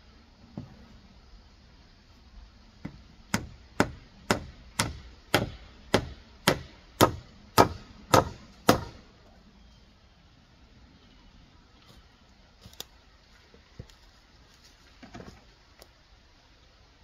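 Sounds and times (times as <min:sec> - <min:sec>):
hammer striking nail into wood: 0:02.8 - 0:09.0.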